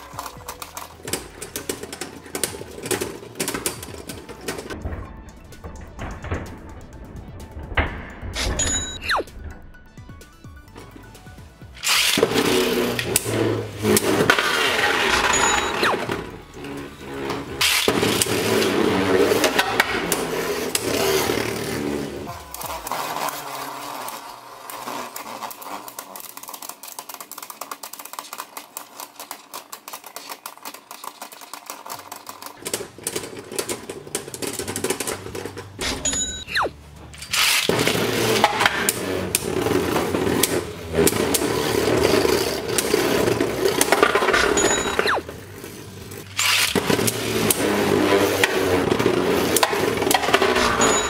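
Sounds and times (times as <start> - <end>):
spinning tops clashing and rattling: 0.0 - 9.5, 10.6 - 51.0.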